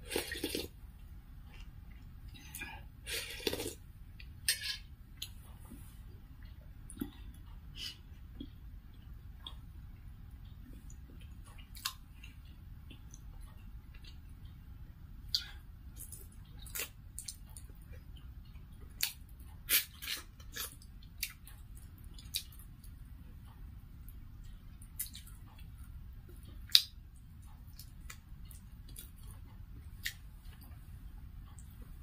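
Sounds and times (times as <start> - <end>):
chewing and mouth smacks: 15.3 - 23.0, 24.8 - 30.8.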